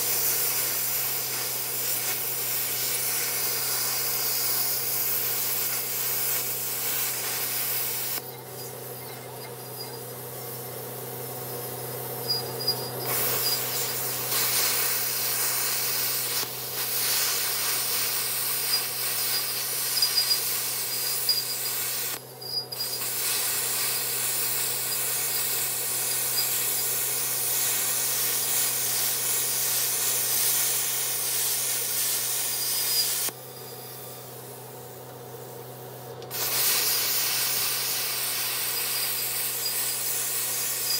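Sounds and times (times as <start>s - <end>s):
plasma cutter hissing: 0.0s - 40.9s.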